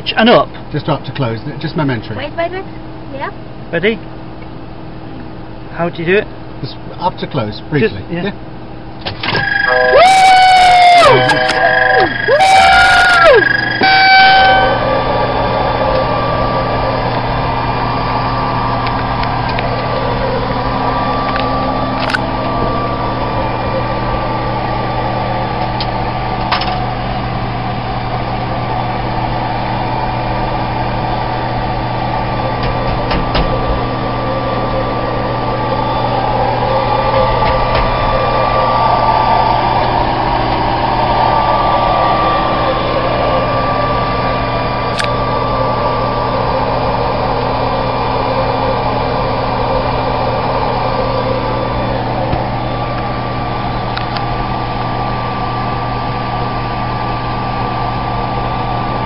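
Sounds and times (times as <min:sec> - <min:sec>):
electrical hum and whine: 0:00.0 - 0:59.0.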